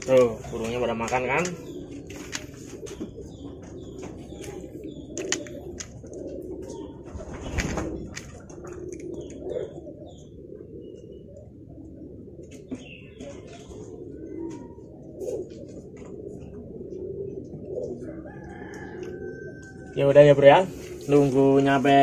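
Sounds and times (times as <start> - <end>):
pigeons cooing: 0.0 - 22.0
small birds chirping: 0.0 - 22.0
sharp clicks: 5.1 - 6.0.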